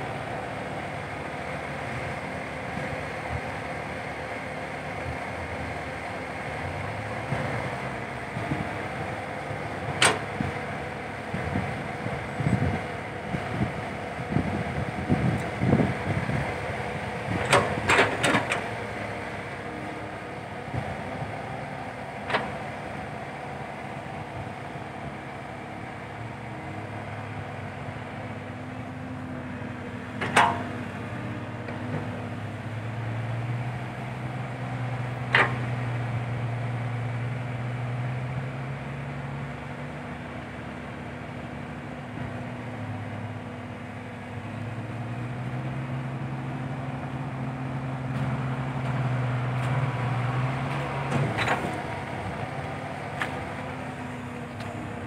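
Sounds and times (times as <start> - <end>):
excavator diesel engine running: 0.0 - 55.0
metallic clanks of excavator bucket: 30.2 - 30.8.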